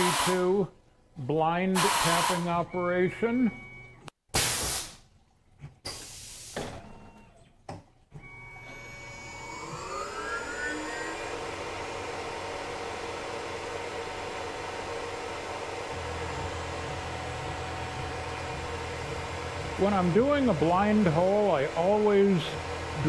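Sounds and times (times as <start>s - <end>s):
coolant spraying: 1.8s - 2.4s
milling spindle whine: 8.2s - 23.0s.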